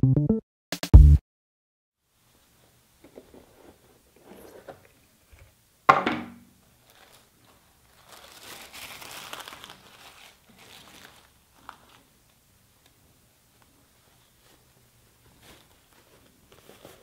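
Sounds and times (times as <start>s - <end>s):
tissue paper crinkling: 6.7s - 17.0s
cardboard box handling rustles: 15.4s - 17.0s.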